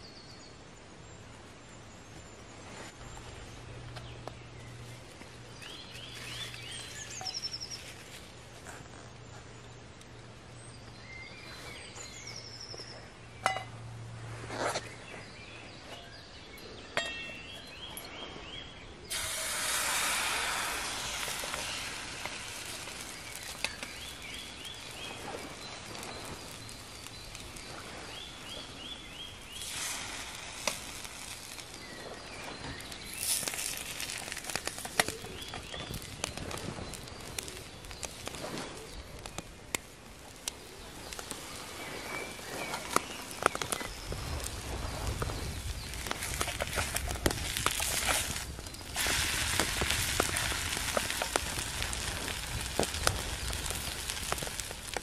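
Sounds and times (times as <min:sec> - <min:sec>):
wood fire crackling: 0:01.3 - 0:16.3, 0:19.0 - 0:55.0
bird calls: 0:04.0 - 0:08.0, 0:14.6 - 0:30.0, 0:31.5 - 0:39.6, 0:40.4 - 0:54.5
clinks and knocks: 0:16.9 - 0:17.5
batter sizzling in a frying pan: 0:19.1 - 0:38.9, 0:40.6 - 0:55.0.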